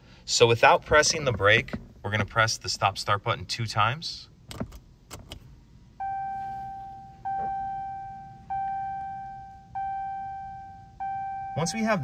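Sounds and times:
car warning chime: 6.0s - 12.0s.

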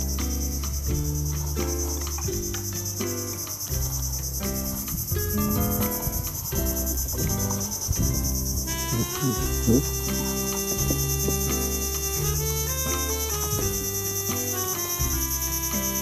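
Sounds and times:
background music of held notes: 0.0s - 16.0s
insects chorus: 0.0s - 16.0s.

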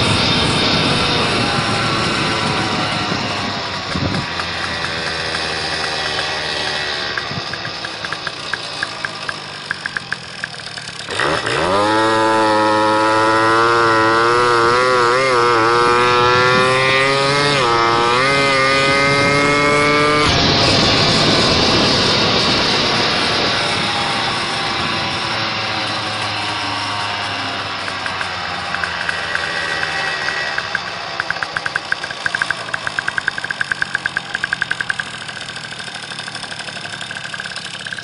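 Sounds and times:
wind noise: 0.0s - 5.6s, 15.7s - 26.5s
moped engine running: 0.0s - 38.0s.

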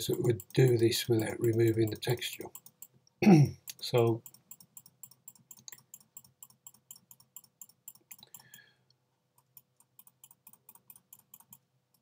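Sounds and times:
faint computer keys clicking: 0.0s - 8.7s, 9.4s - 12.0s.

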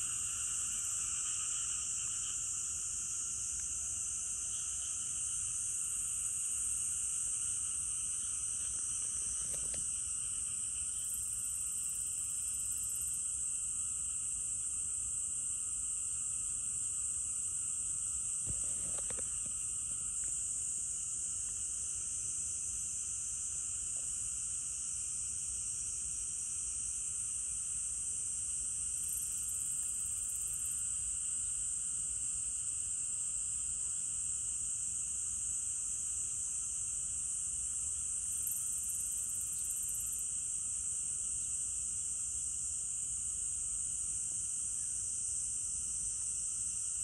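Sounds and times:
insects buzzing: 36.8s - 40.6s.

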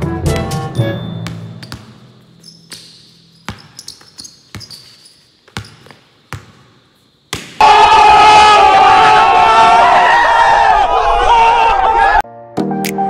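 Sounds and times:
music: 0.0s - 2.4s, 12.2s - 13.0s
basketball bouncing on gym floor: 1.1s - 7.6s.

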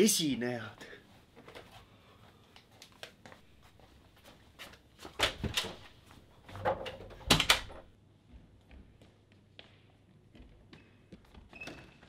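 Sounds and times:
objects knocking and clattering: 6.4s - 7.9s.

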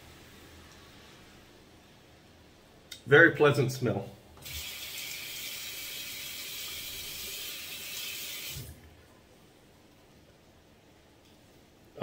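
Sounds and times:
sink tap running: 4.4s - 8.8s.

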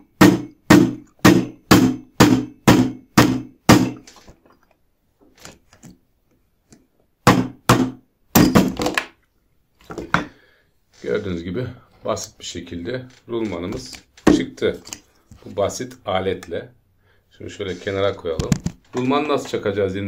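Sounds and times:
plastic mallet striking metal: 0.0s - 4.1s, 7.2s - 9.1s, 13.7s - 14.6s.

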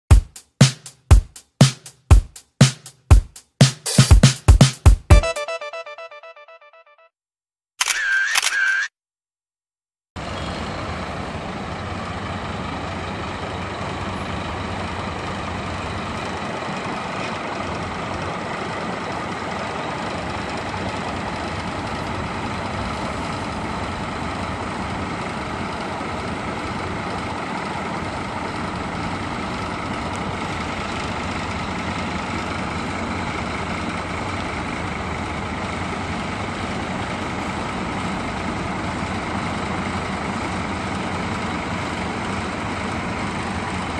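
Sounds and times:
music: 0.1s - 7.1s
diesel coach engine idling: 10.2s - 43.9s.

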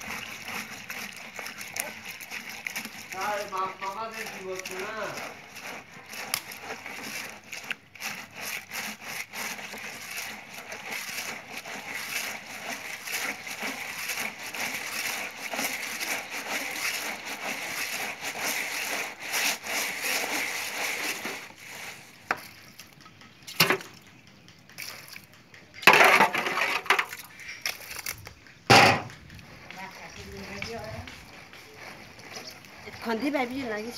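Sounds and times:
metal cup scraping pot: 0.0s - 22.8s, 25.8s - 28.1s, 28.7s - 33.9s
wet gritty rubbing on mesh: 0.0s - 23.0s, 29.0s - 33.9s
sharp knocks: 28.7s - 29.1s.

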